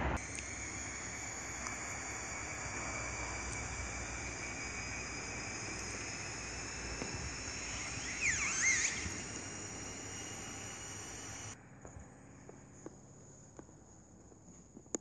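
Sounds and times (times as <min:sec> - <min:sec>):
quick sweeping chirps: 0:00.2 - 0:11.6
insects chirring: 0:00.2 - 0:13.1.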